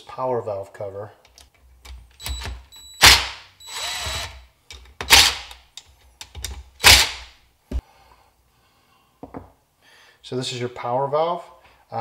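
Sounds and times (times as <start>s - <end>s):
cordless drill running: 3.0s - 4.4s.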